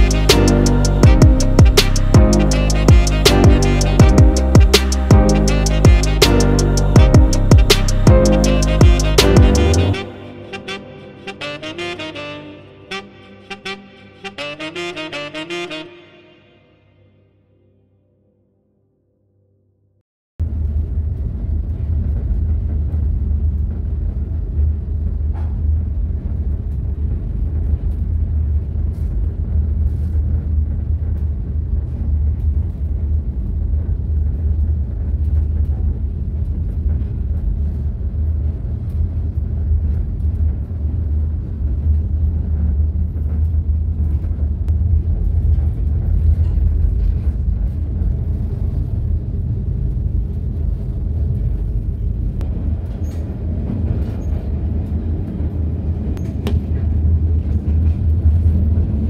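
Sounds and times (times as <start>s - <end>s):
passenger train rumbling: 20.5s - 59.0s.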